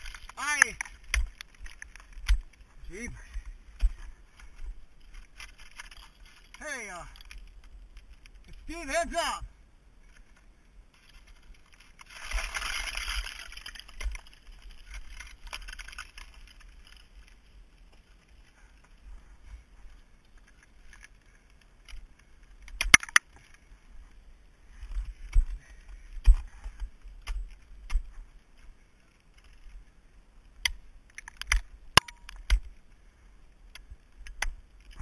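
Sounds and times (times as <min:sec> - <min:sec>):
climbing gear clinking: 0:00.0 - 0:08.7, 0:11.0 - 0:17.4.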